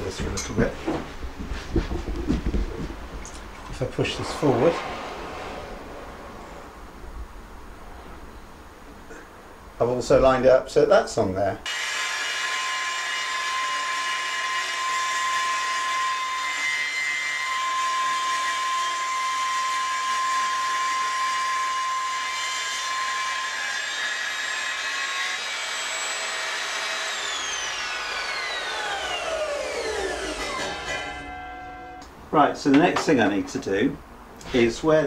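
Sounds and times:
table saw whining: 0:11.7 - 0:32.1.

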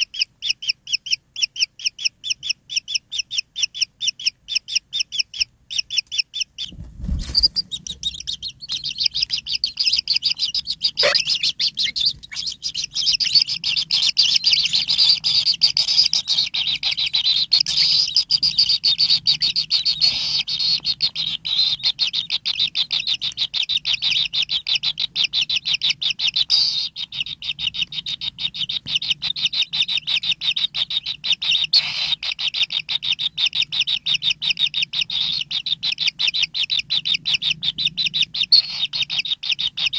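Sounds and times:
nestlings begging chirps: 0:00.0 - 0:39.9.

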